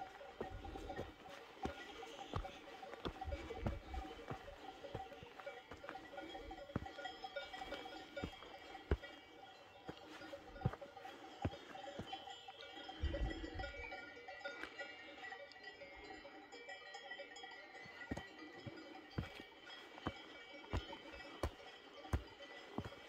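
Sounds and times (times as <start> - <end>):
faint bells ringing: 0.0 - 23.0
footsteps thumping: 0.4 - 6.9, 20.8 - 23.0.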